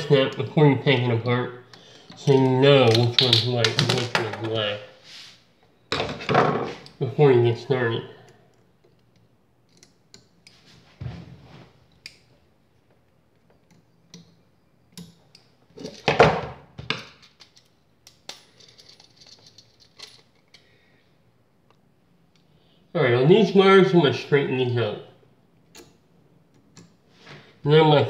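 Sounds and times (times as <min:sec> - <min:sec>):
metallic clicks and clinks: 0:17.2 - 0:20.6.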